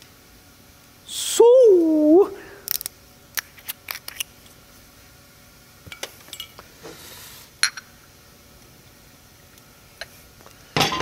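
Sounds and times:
glass clink: 0:06.3 - 0:06.6.

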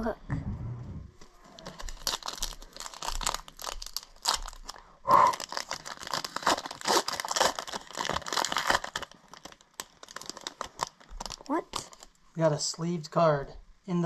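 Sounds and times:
foil wrapper tearing and crinkling: 0:01.5 - 0:12.1.

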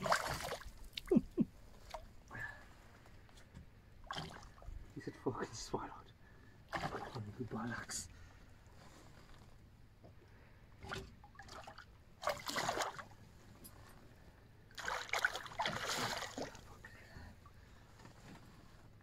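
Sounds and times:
water splashing: 0:00.0 - 0:01.2, 0:04.0 - 0:04.6, 0:06.7 - 0:07.3, 0:10.8 - 0:13.1, 0:14.7 - 0:16.7.

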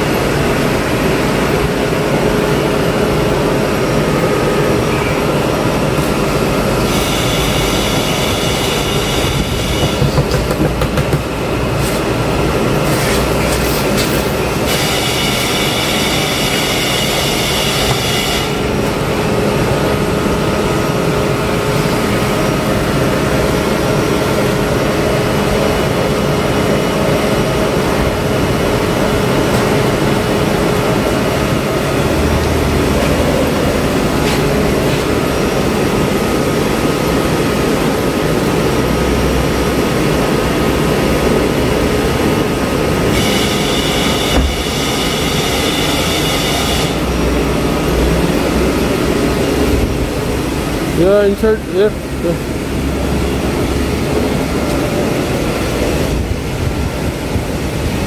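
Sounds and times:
car wash machinery whining: 0:00.0 - 0:58.0.

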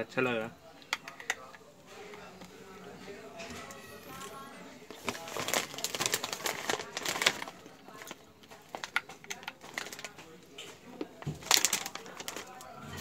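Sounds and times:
brittle crunching and snapping: 0:04.9 - 0:12.7.

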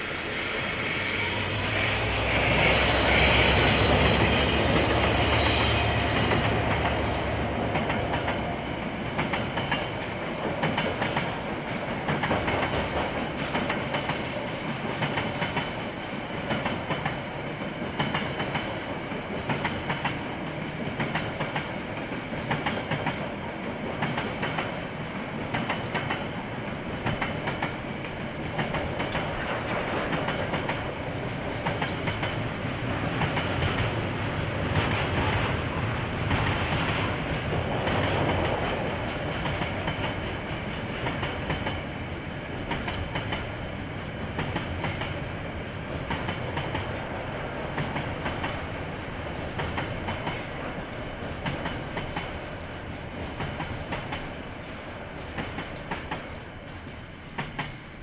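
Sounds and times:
diesel locomotive engines: 0:00.0 - 0:58.0
train rolling rumble: 0:00.0 - 0:58.0
train wheels clickety-clack: 0:01.3 - 0:58.0.

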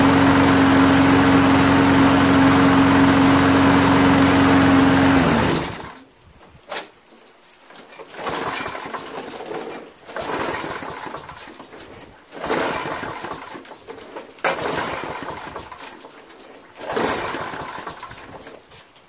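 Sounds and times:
lawn mower engine running: 0:00.0 - 0:06.1, 0:08.1 - 0:09.1, 0:10.1 - 0:11.5, 0:12.3 - 0:13.7, 0:14.5 - 0:15.9, 0:16.8 - 0:18.4.

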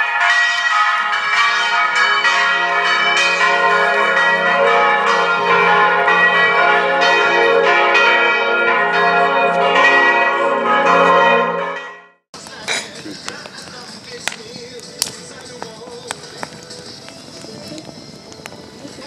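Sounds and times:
church bells ringing: 0:00.0 - 0:12.2.

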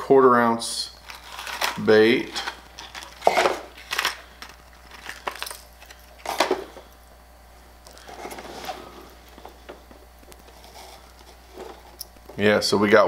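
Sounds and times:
plastic packaging clicks and rustles: 0:01.0 - 0:06.9.

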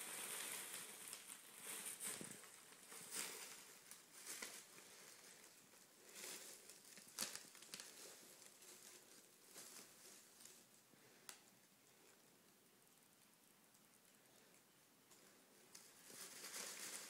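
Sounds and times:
plastic bags rustling: 0:00.0 - 0:11.2, 0:15.6 - 0:17.0.

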